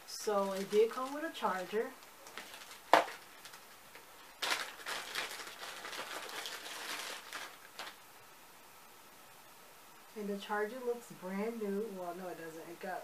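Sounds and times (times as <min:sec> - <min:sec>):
plastic bag crinkling: 0:00.1 - 0:08.1.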